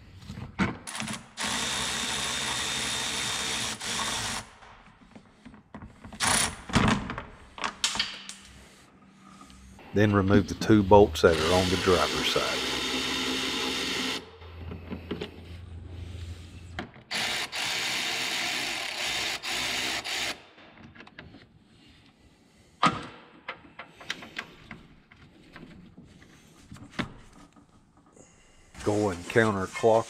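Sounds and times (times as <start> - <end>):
power tool running: 1.0 - 4.5, 10.6 - 14.7, 17.1 - 20.4.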